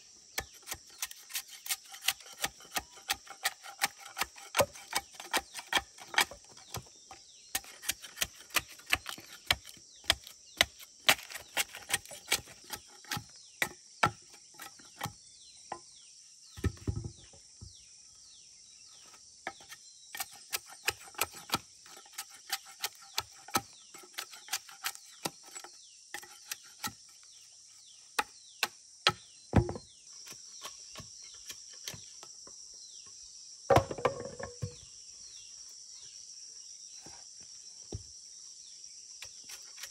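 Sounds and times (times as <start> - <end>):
insects buzzing: 0.0 - 39.9
machete chopping wood: 0.4 - 6.9, 7.6 - 14.4, 33.7 - 34.8.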